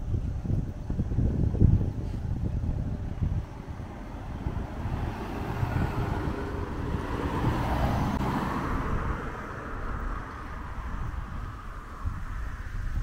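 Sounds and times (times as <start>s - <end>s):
wind on microphone: 0.0s - 13.0s
car passing by: 3.2s - 13.0s.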